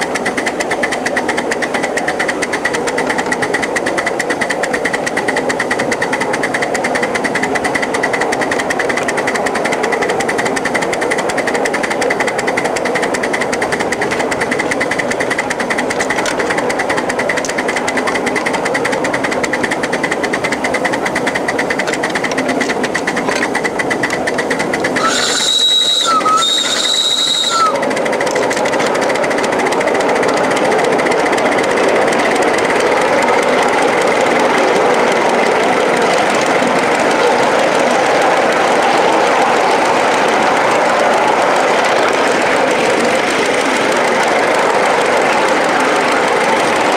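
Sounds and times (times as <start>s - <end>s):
model steam train clattering: 0.0s - 46.9s
steam whistle blasts: 25.0s - 27.9s.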